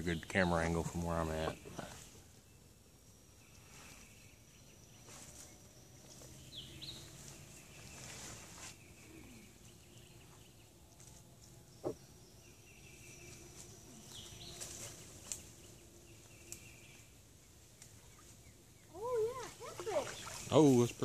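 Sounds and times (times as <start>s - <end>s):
insect calls: 0.0s - 21.0s
bird chirps: 3.3s - 10.8s, 11.7s - 21.0s.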